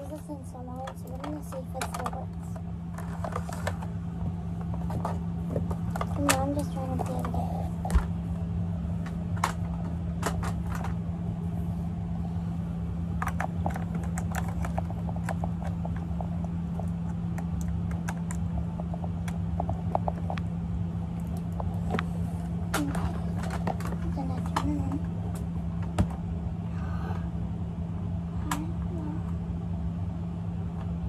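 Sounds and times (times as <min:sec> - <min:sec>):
low hum: 0:00.0 - 0:31.0.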